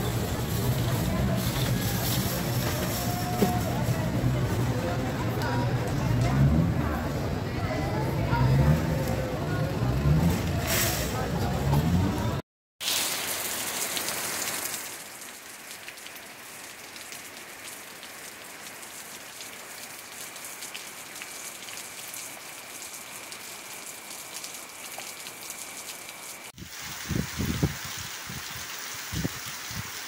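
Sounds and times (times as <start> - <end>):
rain falling on leaves: 12.8 - 30.0.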